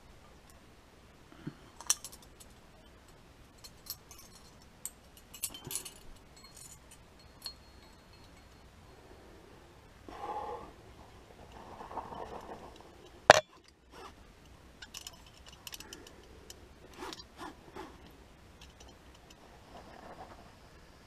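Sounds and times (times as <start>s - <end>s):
climbing gear clinking: 3.6s - 8.8s.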